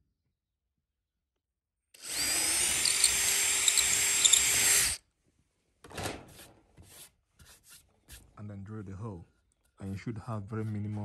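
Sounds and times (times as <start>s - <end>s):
drill boring into wood: 2.0s - 5.0s.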